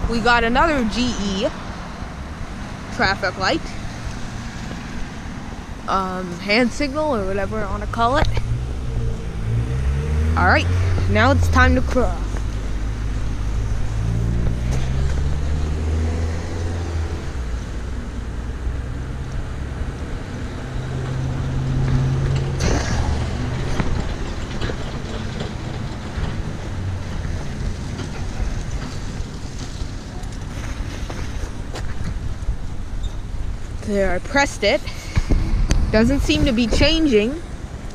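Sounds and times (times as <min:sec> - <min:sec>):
cars driving past: 0:00.0 - 0:37.9
wind on microphone: 0:26.5 - 0:37.9.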